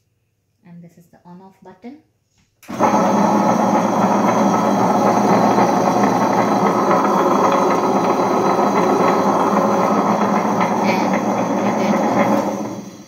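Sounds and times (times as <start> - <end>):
wet grinder motor whirring: 2.7 - 13.0.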